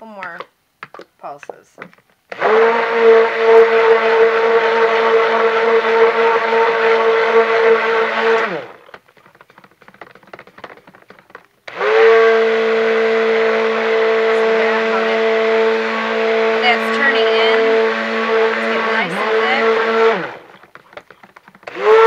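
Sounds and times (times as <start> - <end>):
stick blender motor whine: 0.9 - 22.0.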